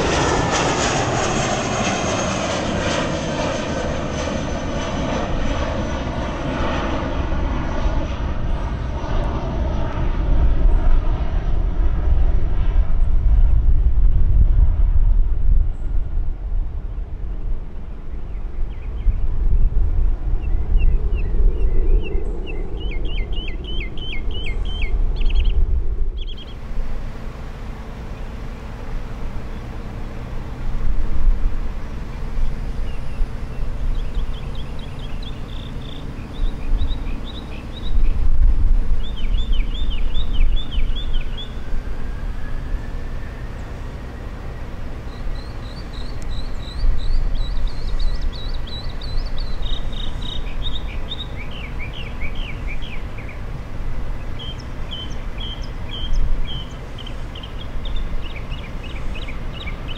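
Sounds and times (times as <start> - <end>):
faint rising whine: 0.0 - 59.9
low rumble in gusts: 0.0 - 59.9
songbird chirping: 31.8 - 38.2, 43.2 - 53.4, 54.2 - 59.9.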